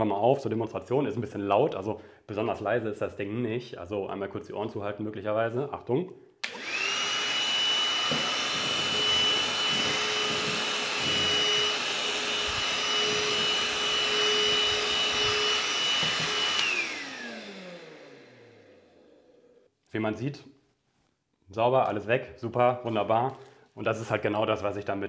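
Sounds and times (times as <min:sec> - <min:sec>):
handheld vacuum whining: 0:06.4 - 0:19.6.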